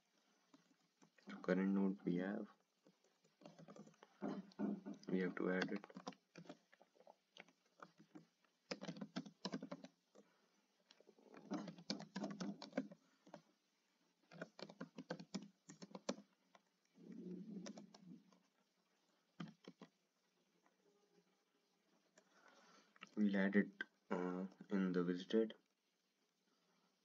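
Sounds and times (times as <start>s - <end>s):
typing on computer keyboard: 7.4s - 10.2s, 11.4s - 13.4s, 14.3s - 16.3s, 17.1s - 18.4s, 19.4s - 20.0s.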